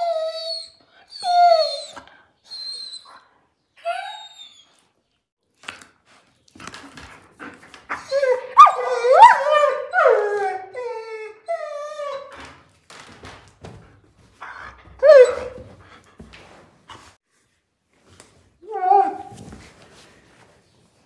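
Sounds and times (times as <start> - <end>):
puppy whining: 0.0 - 4.9, 7.9 - 12.4, 14.4 - 15.7.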